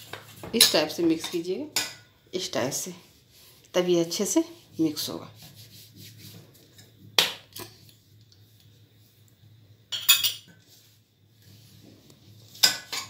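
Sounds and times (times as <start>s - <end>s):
hands rubbing flour in a bowl: 2.6s - 7.1s, 7.7s - 9.5s, 10.6s - 12.7s.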